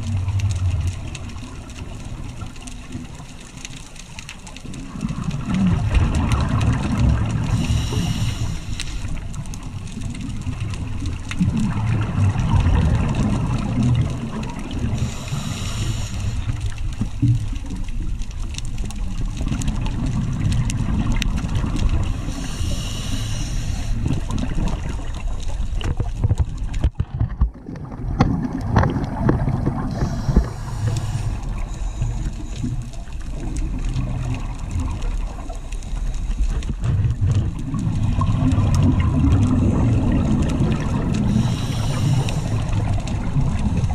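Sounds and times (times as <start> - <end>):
underwater bubbles gurgling: 0.0 - 43.9
regulator hiss: 7.5 - 9.2, 14.9 - 16.7, 22.2 - 24.2, 29.9 - 32.8, 41.2 - 42.8.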